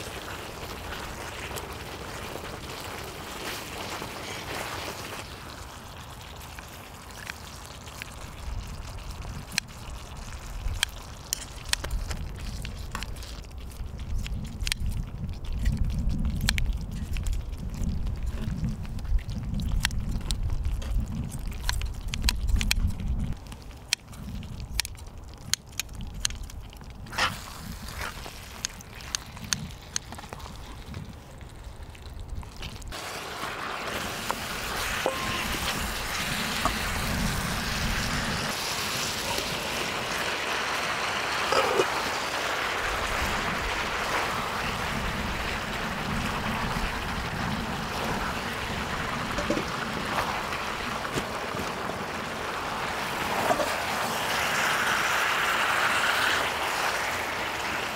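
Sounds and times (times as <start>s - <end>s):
food sizzling loudly: 0.0s - 13.4s, 32.9s - 57.9s.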